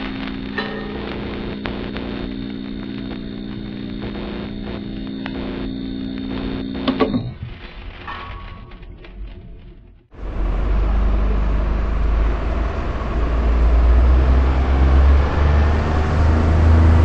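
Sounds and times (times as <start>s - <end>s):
sharp crackling clicks: 0.0s - 10.1s
electrical hum and buzz: 0.0s - 17.0s.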